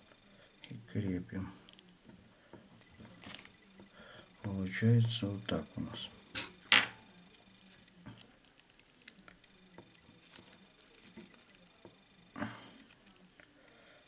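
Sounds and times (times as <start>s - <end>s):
fingers rustling thread and film: 1.4s - 4.5s, 6.5s - 13.8s.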